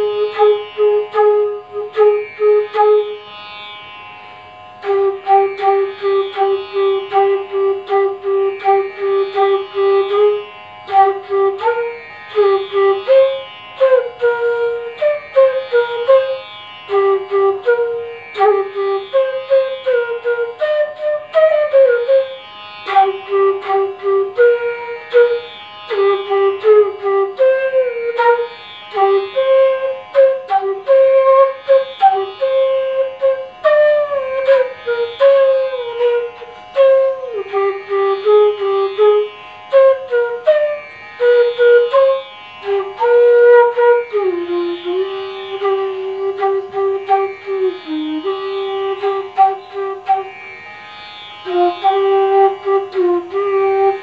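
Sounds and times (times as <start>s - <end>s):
bamboo flute melody: 0.0s - 3.9s, 4.7s - 54.0s.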